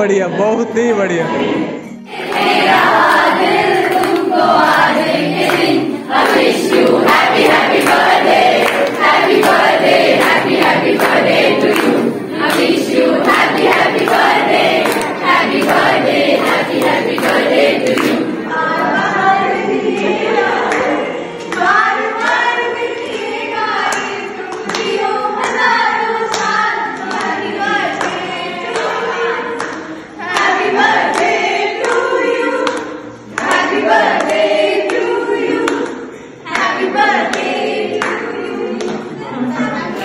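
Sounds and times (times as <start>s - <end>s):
group singing in chorus: 0.2s - 40.0s
people clapping along: 2.1s - 40.0s.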